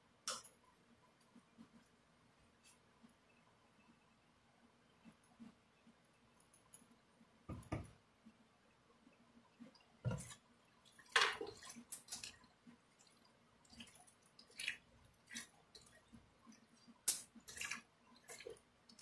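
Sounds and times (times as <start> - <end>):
hands squelching wet food: 9.7 - 19.0.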